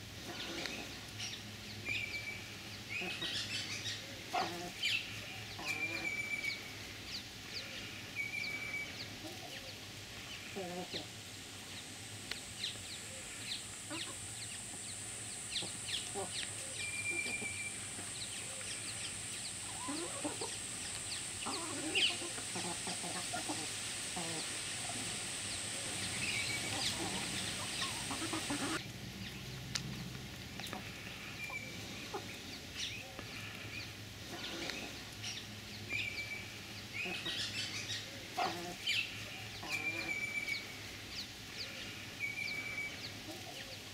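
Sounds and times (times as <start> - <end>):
hens clucking softly: 4.2 - 6.6, 13.2 - 14.8, 19.6 - 28.8, 37.0 - 40.5.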